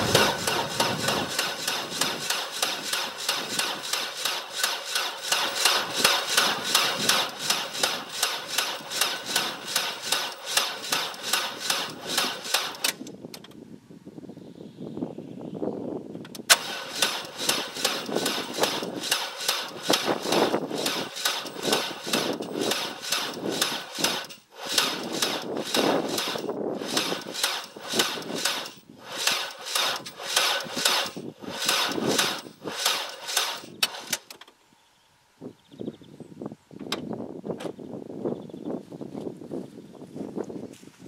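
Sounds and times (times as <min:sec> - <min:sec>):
starter motor cranking engine: 0:00.0 - 0:13.1, 0:16.4 - 0:34.4.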